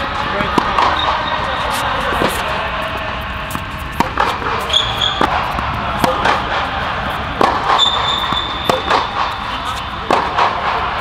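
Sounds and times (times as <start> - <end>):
rackets striking tennis ball: 0.0 - 11.0
ball bouncing on court: 0.3 - 2.5, 3.5 - 11.0
short high squeaks: 4.6 - 5.2, 7.7 - 8.8.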